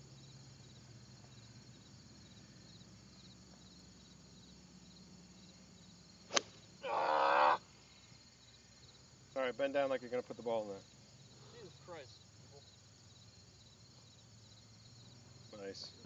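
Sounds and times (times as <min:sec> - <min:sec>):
crickets chirping: 0:00.0 - 0:16.0
golf club striking ball: 0:06.3 - 0:06.7
person crying out: 0:06.8 - 0:07.6.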